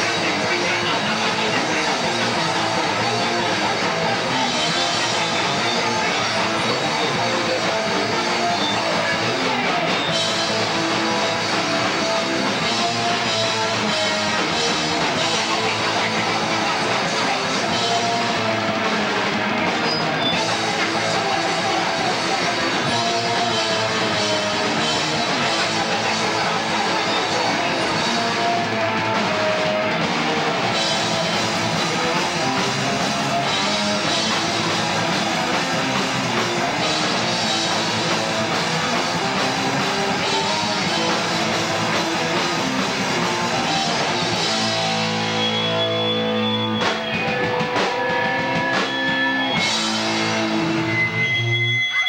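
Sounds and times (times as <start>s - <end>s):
rock band playing loud: 0.0s - 52.0s.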